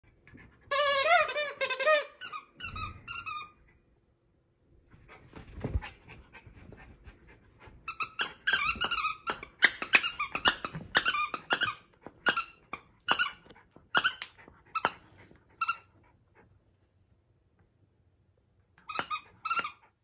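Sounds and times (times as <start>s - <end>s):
high-pitched toy squeaks: 0.7s - 3.6s
plush toy rustling: 5.0s - 7.1s.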